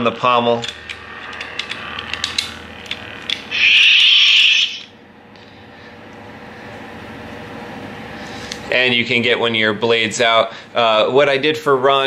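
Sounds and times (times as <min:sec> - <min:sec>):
loud hiss from small speaker: 0:03.5 - 0:04.9.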